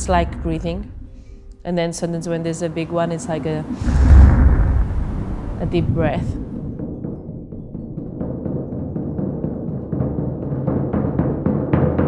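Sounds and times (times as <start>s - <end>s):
low sustained tones: 0.0s - 7.0s.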